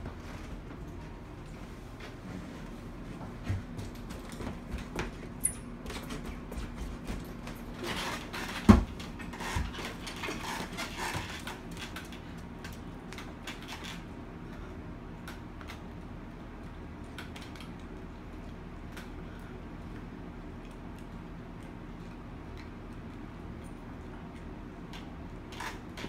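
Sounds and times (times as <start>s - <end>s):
footsteps: 0.0s - 9.8s.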